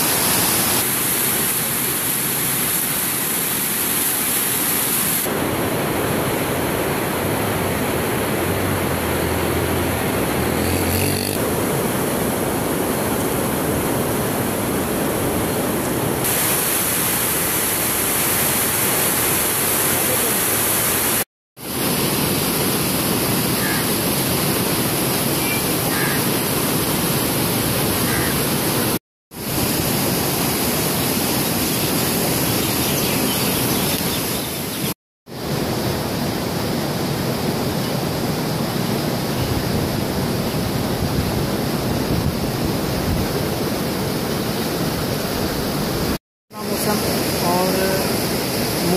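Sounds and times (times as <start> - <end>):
water rushing through gates: 46.6 - 48.9.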